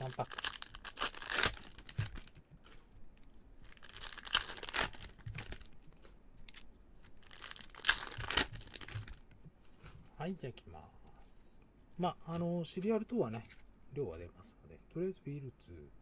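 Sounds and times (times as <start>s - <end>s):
foil wrappers crinkling and tearing: 0.0s - 2.8s, 3.6s - 9.2s.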